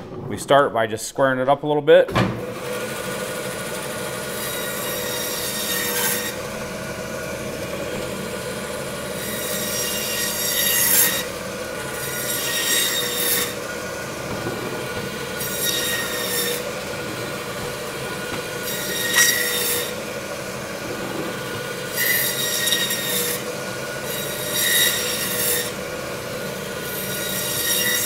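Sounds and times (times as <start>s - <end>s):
band saw cutting bone: 2.4s - 28.0s.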